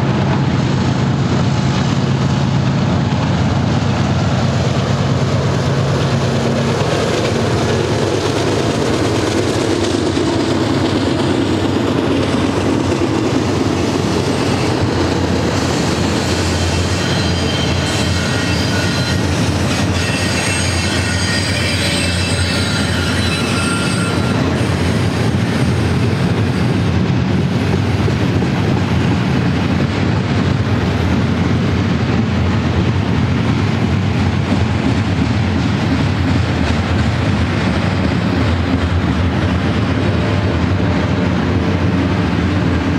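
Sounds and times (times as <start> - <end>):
diesel locomotive drone: 0.0 - 42.9
train wheels rumbling on rail: 0.0 - 42.9
high-pitched wheel squeals: 15.8 - 26.8.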